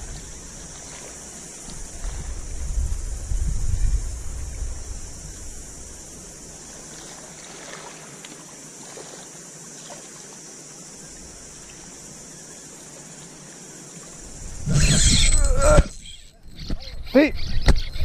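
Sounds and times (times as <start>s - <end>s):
sea water washing against rocks: 6.3s - 10.6s
sudden rush of water: 6.5s - 10.5s.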